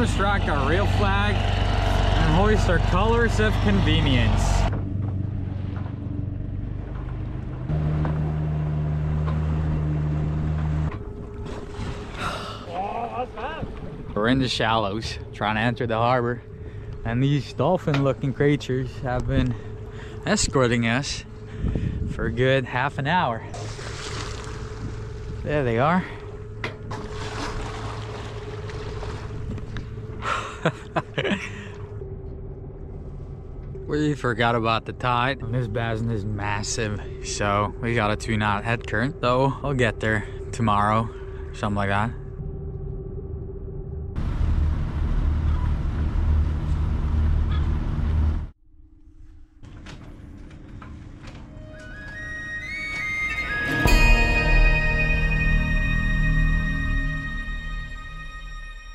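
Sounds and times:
boat engine running: 0.0s - 48.7s
wind: 0.0s - 58.9s
man laughing: 12.6s - 13.7s, 30.2s - 31.9s
rushing water: 23.6s - 25.2s, 27.0s - 29.4s.

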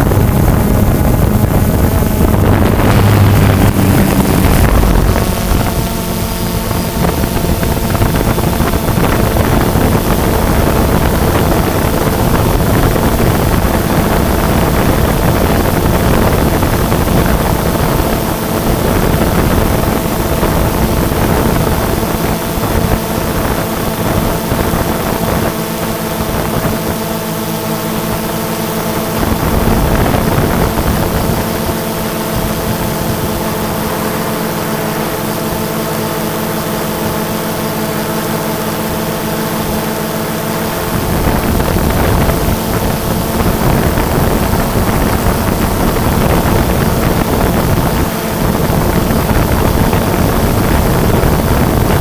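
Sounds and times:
drone motors whining: 0.0s - 15.0s
wind rumble on microphone: 0.0s - 52.0s.

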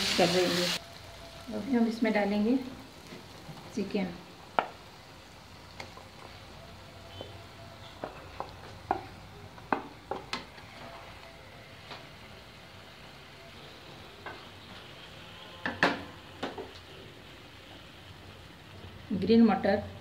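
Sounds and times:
faint sizzle: 0.0s - 20.0s
spatula knocking on pan: 8.0s - 10.5s.

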